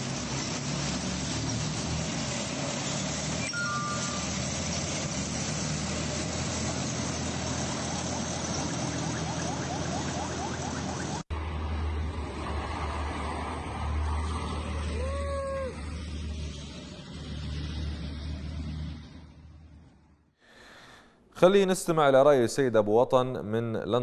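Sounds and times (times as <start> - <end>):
convoy vehicle engines and road noise: 0.0 - 20.4
two-note beep: 3.4 - 4.5.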